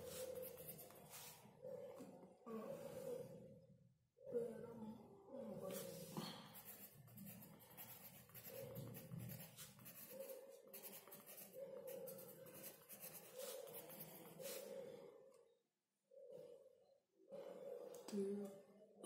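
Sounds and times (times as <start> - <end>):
pencil scratching on paper: 0.0 - 1.9, 5.7 - 15.0.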